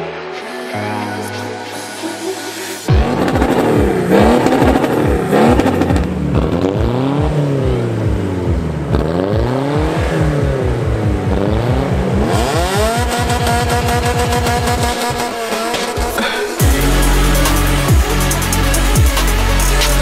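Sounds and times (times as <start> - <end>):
diesel engine revving: 2.9 - 20.0.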